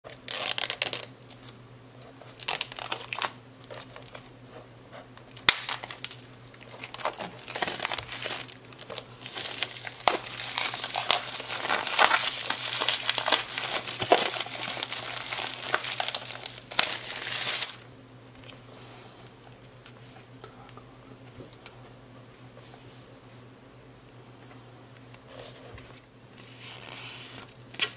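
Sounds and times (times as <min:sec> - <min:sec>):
plastic wrap crinkling and tearing: 0:00.1 - 0:01.5, 0:02.3 - 0:04.3, 0:05.2 - 0:17.8.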